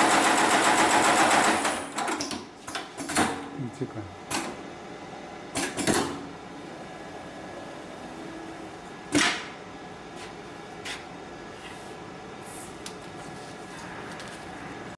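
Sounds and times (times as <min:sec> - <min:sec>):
machine humming: 0:03.4 - 0:11.5.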